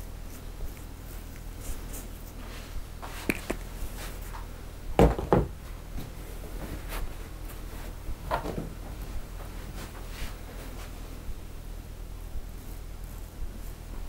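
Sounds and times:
tools knocking on wooden counter: 5.0 - 5.6.

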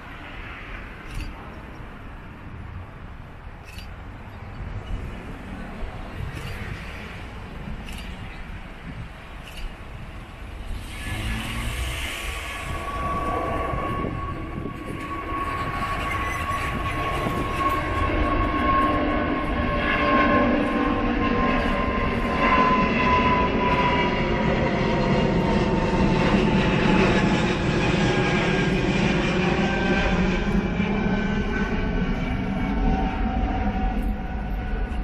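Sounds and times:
jet engine whine: 0.0 - 35.0
deep jet rumble: 4.2 - 35.0.

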